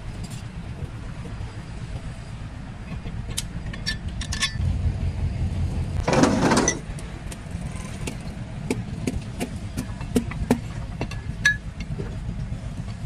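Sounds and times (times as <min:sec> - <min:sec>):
metal parts clinking: 0:03.6 - 0:04.6.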